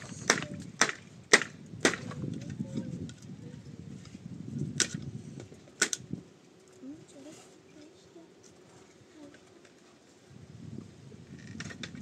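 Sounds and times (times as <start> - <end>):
tool striking hard blows: 0.0 - 2.1.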